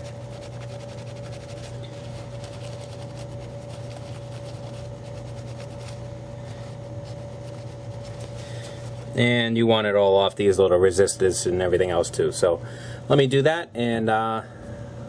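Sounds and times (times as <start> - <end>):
cloth rubbing circuit board: 0.0 - 9.2
steady background hum: 0.0 - 15.0.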